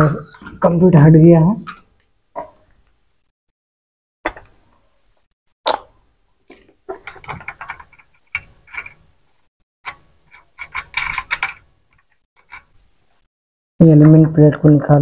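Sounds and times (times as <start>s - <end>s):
metal nuts clicking and clinking: 6.9s - 9.2s, 9.9s - 13.0s.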